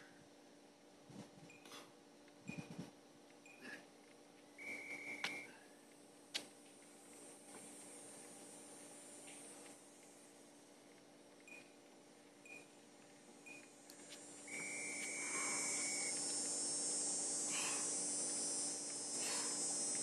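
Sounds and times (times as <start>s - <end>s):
timer beeps: 3.5s - 3.7s, 12.5s - 12.7s, 14.5s - 16.2s
steady high hiss: 13.2s - 20.0s.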